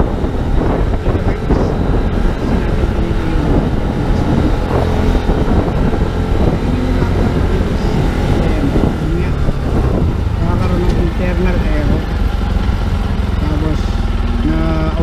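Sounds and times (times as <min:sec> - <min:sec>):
motorcycle engine running: 0:00.0 - 0:15.0
wind noise on microphone: 0:00.0 - 0:15.0.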